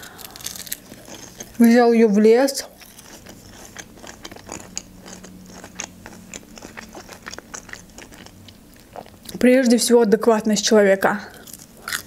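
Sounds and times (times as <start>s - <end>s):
chewing crunchy food: 0.0s - 1.8s, 2.6s - 9.4s, 11.3s - 12.0s.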